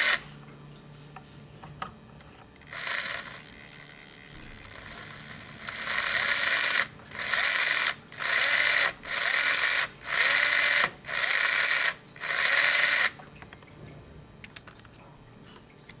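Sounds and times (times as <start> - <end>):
small electric motor whining: 0.0 - 0.3, 2.6 - 13.2.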